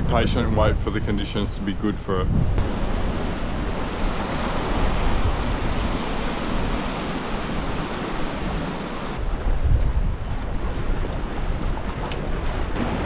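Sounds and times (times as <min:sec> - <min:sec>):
wind buffeting microphone: 0:00.0 - 0:13.0
ocean swell washing over rocks: 0:02.6 - 0:13.0.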